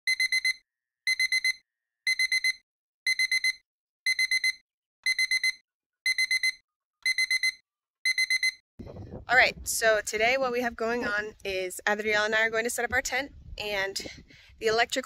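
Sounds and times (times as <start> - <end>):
phone alarm beeping: 0.1 - 8.6.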